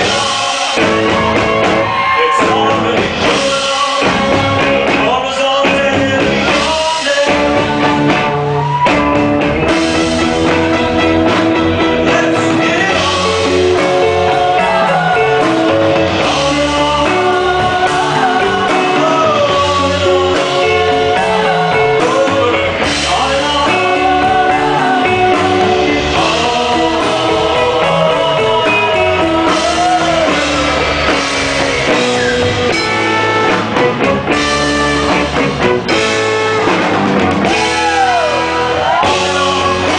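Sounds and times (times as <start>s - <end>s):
man singing lead: 0.0s - 8.2s, 11.8s - 33.5s, 37.4s - 39.9s
live rock band playing: 0.0s - 39.9s
women singing backing vocals: 14.0s - 30.6s.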